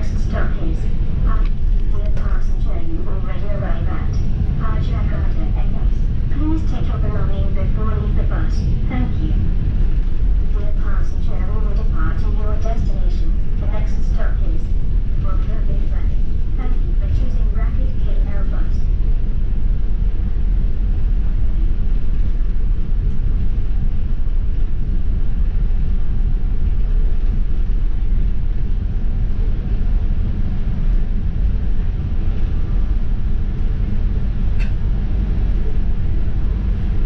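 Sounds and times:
bus engine and road rumble: 0.0 - 37.0.

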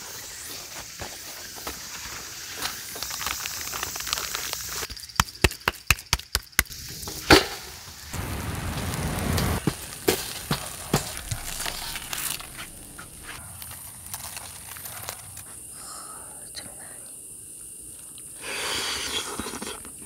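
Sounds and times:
wood fire crackling: 2.9 - 4.9, 6.6 - 15.6.

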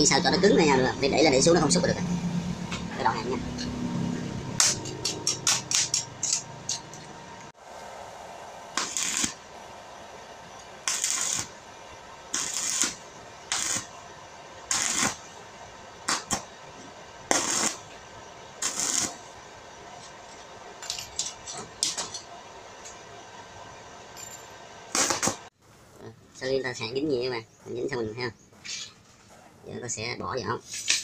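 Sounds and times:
arc welder crackling sizzles: 4.6 - 24.2, 24.8 - 25.6.

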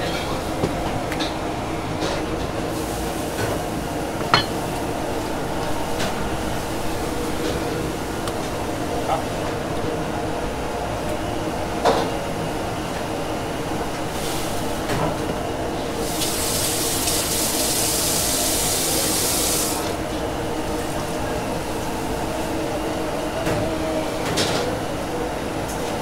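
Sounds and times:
steady background hum: 0.0 - 26.0
water spraying: 16.0 - 19.8.

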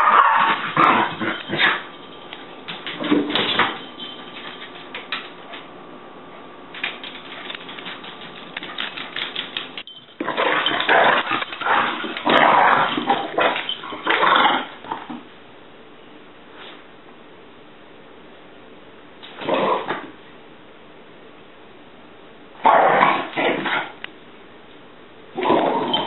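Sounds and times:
dog and cat scuffling: 0.0 - 15.3.

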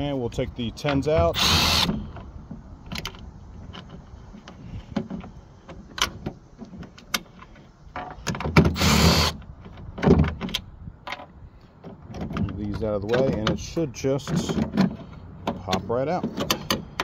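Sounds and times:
latch parts clicking and rattling: 0.7 - 17.0
cordless driver running: 1.4 - 2.0, 8.8 - 9.4.

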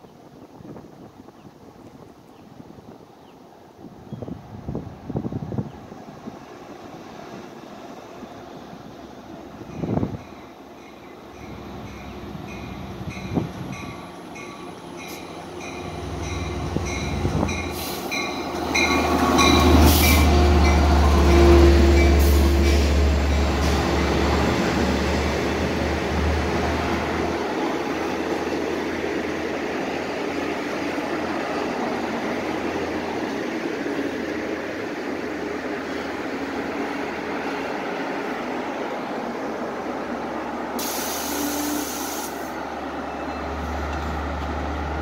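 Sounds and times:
diesel train rumble: 4.4 - 45.0
train wheels on rails: 5.7 - 45.0.

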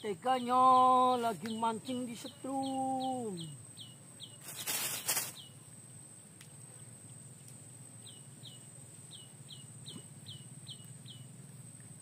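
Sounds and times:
bird chirping: 0.0 - 5.6, 8.0 - 11.4
outdoor background noise: 0.0 - 12.0.

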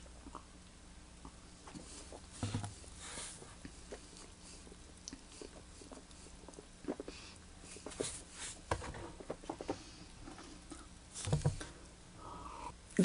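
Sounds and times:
mouth swishing and smacking: 5.0 - 8.4.

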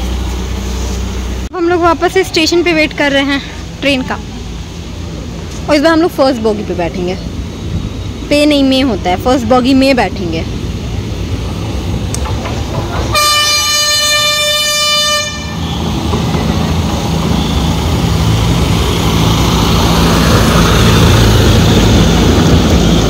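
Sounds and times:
train engine and wheels running: 0.0 - 23.0
toy train horn: 13.1 - 15.6.

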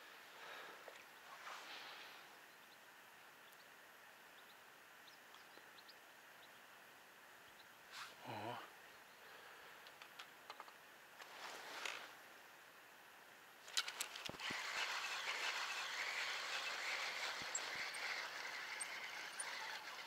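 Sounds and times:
fishing reel whirring: 13.7 - 20.0.

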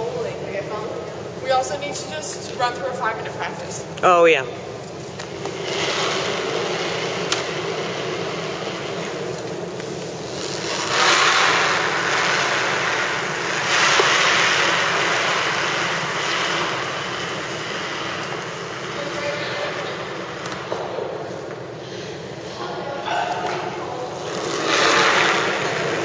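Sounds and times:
curling stone gliding over ice: 5.4 - 20.4, 24.0 - 26.0.

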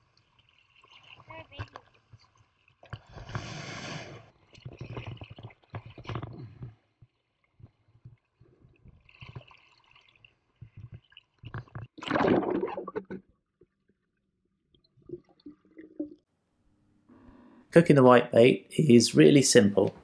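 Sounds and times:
water gurgling and bubbling: 12.0 - 13.2.

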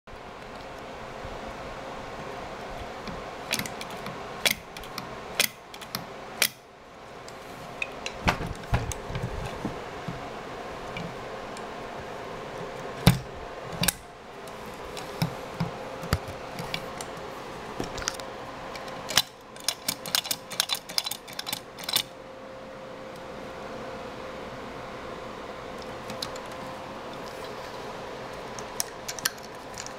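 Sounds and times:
steady background hum: 0.1 - 29.9
metal carburetor clicks and knocks: 18.8 - 22.0.

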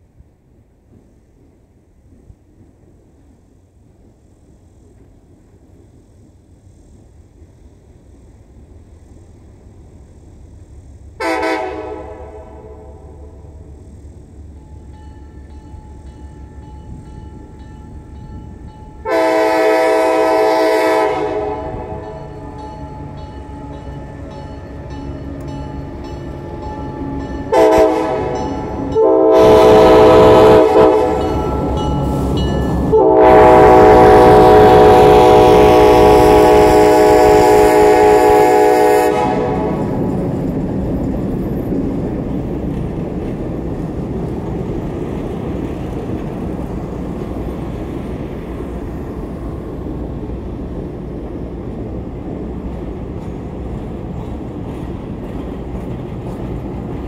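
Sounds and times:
locomotive rumble: 0.0 - 57.0
train wheels rumbling on rail: 0.0 - 57.0
locomotive air horn blasts: 11.2 - 13.5, 19.0 - 22.5, 27.4 - 40.0.

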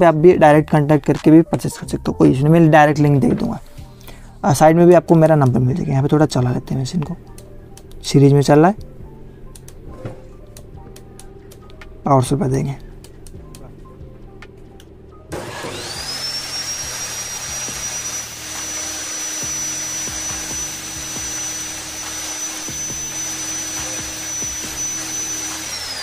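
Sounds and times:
saw motor whining: 15.3 - 26.0.

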